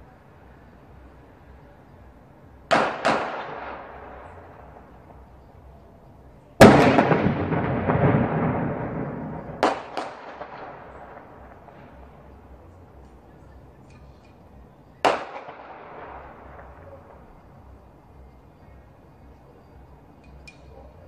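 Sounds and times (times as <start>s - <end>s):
firework bangs: 2.7s - 5.4s, 6.6s - 12.6s, 14.9s - 17.4s.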